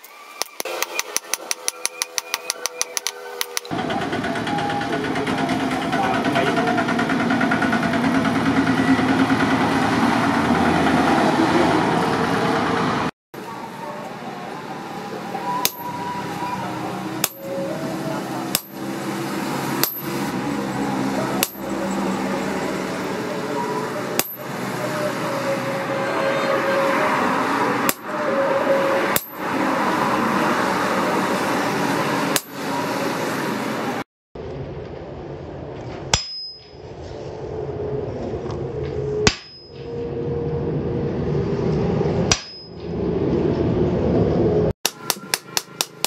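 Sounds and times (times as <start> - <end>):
hammer striking metal: 0.4 - 3.7, 15.6 - 16.2, 17.1 - 17.6, 18.5 - 19.2, 19.8 - 20.3, 21.3 - 22.1, 24.1 - 24.7, 27.8 - 28.1, 29.1 - 29.5, 32.3 - 32.7, 36.1 - 36.8, 39.2 - 39.8, 42.3 - 42.8, 44.9 - 46.0
low hum: 34.4 - 44.7.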